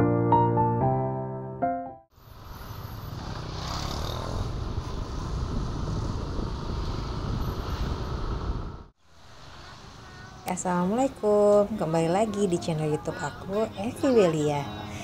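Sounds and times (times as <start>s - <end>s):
piano jingle: 0.0s - 2.1s
motorcycles riding past: 2.2s - 10.4s.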